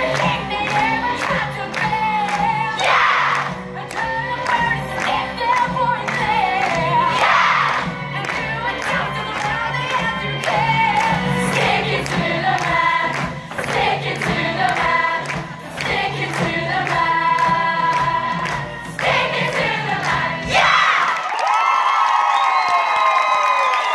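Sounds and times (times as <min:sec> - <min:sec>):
young voices singing together: 0:00.0 - 0:21.1.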